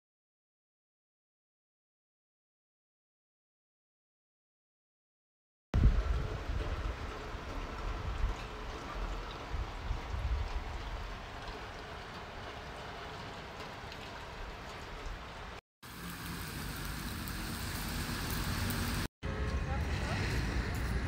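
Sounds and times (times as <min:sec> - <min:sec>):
steady rain on wet street: 0:05.8 - 0:20.7.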